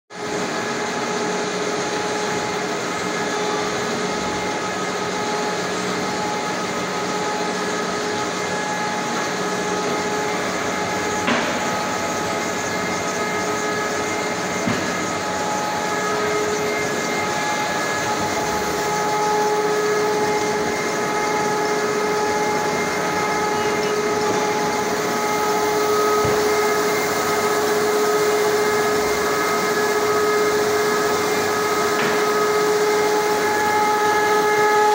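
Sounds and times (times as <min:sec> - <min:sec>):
paper finishing machine hum: 0:00.1 - 0:34.9.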